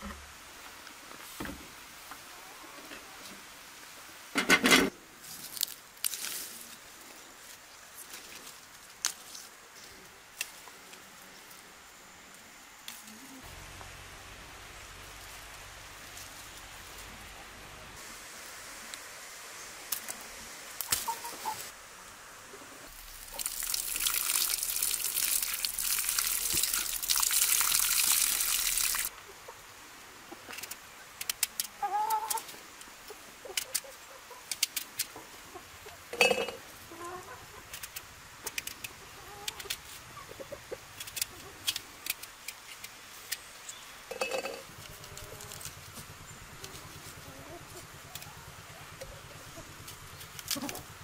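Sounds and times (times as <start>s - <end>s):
steady hiss: 0.0s - 31.8s
chickens clucking: 20.9s - 21.7s, 35.3s - 37.8s, 38.5s - 41.6s.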